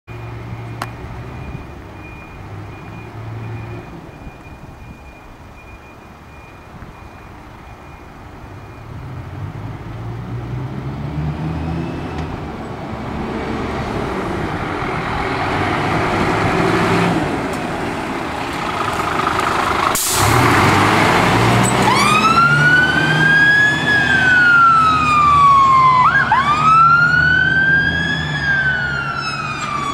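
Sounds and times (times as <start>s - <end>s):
fire engine pulling out: 0.1s - 29.9s
electronic wail siren: 21.8s - 29.9s.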